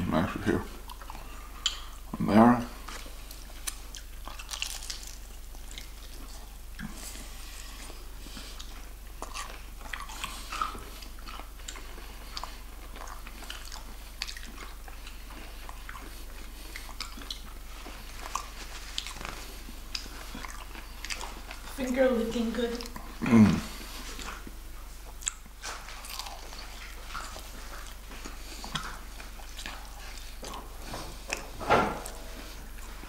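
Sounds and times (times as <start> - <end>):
person chewing fried chicken: 0.5 - 21.8, 22.7 - 33.0.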